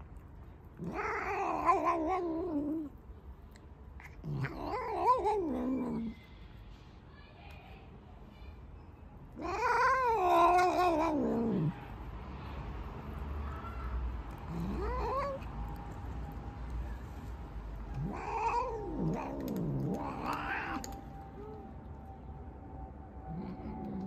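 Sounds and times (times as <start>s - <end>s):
cat meowing: 0.8s - 2.9s, 4.0s - 6.2s, 9.4s - 11.8s, 13.5s - 15.5s, 17.9s - 21.7s.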